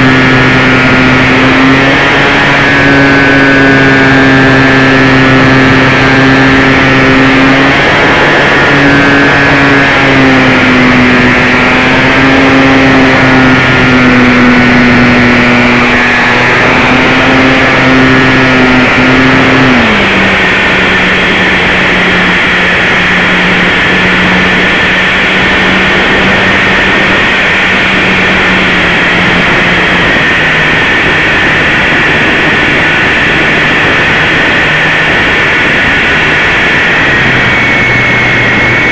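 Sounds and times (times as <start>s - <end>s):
wind rushing: 0.0s - 12.6s
model airplane motor buzzing: 0.0s - 38.9s.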